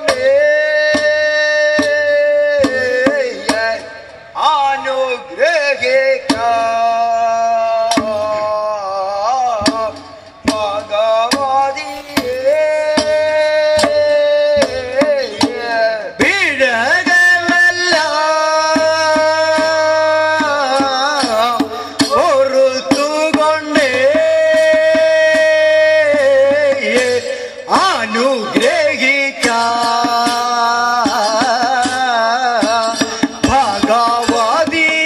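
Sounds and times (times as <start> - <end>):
men singing through sound system: 0.0 - 35.0
hand drum strokes: 9.5 - 16.4, 17.4 - 35.0.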